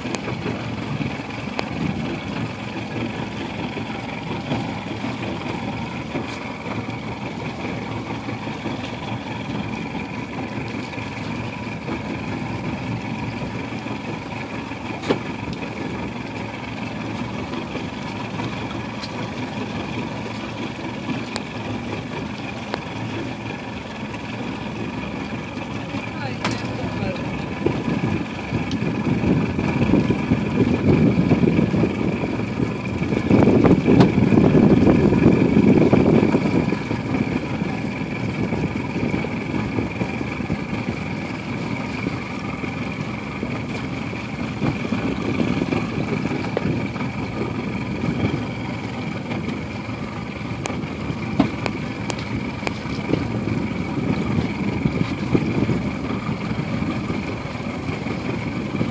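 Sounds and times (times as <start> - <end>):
motorboat engine whining: 0.0 - 58.9
wind buffeting microphone: 0.0 - 58.9.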